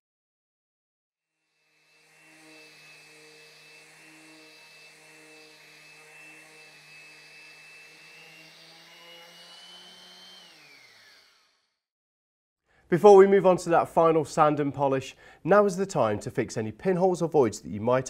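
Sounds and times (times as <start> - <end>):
orbital sander whine: 1.4 - 11.8.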